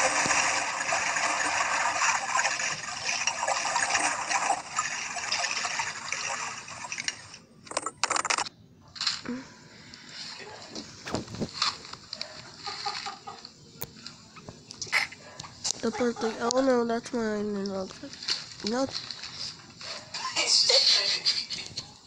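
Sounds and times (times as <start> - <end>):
water bubbling: 0.0 - 7.3
short bursts of noise: 7.6 - 8.5.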